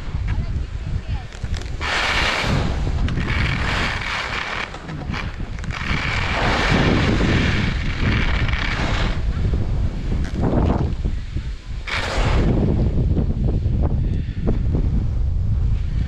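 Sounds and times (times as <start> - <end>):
wind buffeting microphone: 0.0 - 16.0
skis hissing on snow: 1.4 - 9.4.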